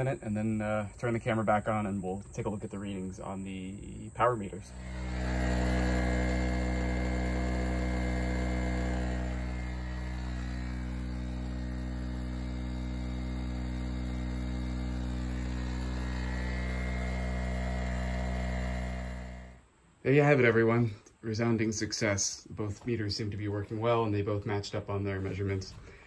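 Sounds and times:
portable generator droning: 0.0 - 19.6.

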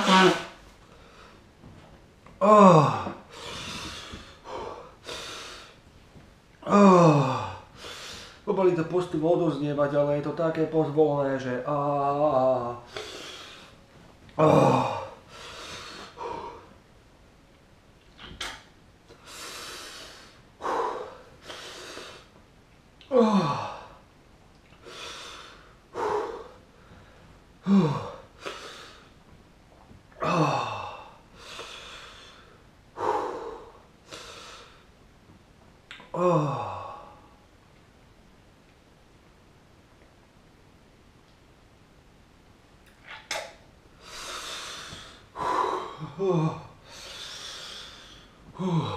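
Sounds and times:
man breathing hard: 2.5 - 5.8, 14.4 - 16.8, 19.2 - 22.3, 24.8 - 29.1, 30.2 - 34.9, 44.0 - 48.9
voiced sigh: 44.1 - 48.9.

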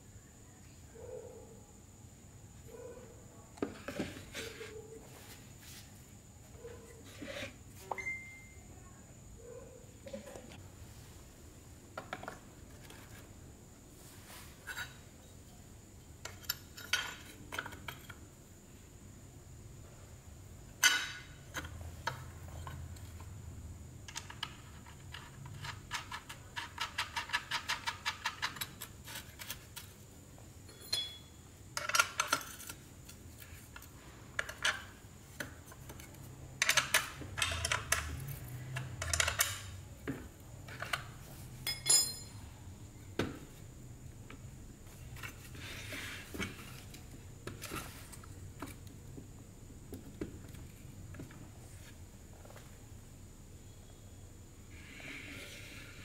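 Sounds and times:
metal tools clinking and scraping: 30.7 - 32.8, 41.6 - 42.5.

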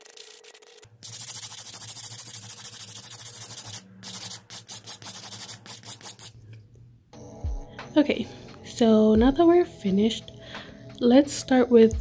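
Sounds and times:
nail file rasping: 1.0 - 6.4.

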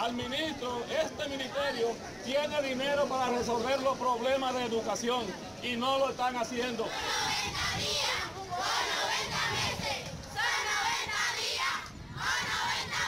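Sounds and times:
crowd chanting slogans: 6.6 - 13.0.

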